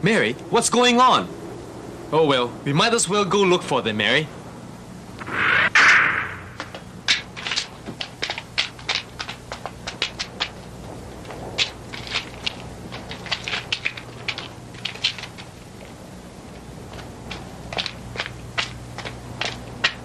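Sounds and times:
steady low hum: 0.0 - 20.0
footsteps on rough ground: 6.6 - 20.0.

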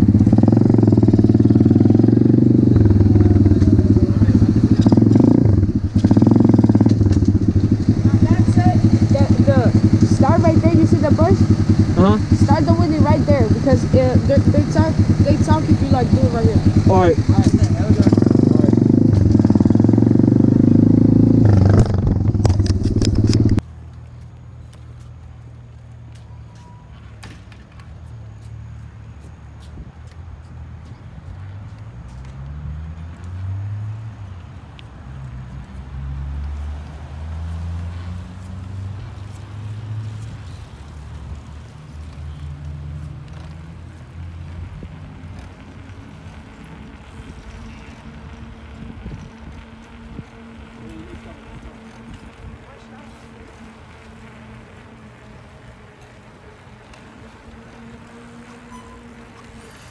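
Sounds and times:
motorcycle engine under throttle: 0.0 - 23.6.

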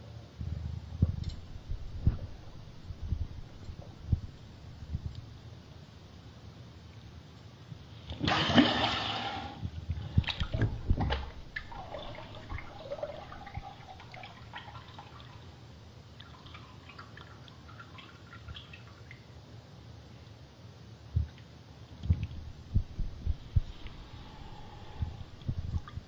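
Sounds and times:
bath water splashing: 8.2 - 15.4
water gurgling and dripping: 8.2 - 15.5, 23.3 - 26.0.

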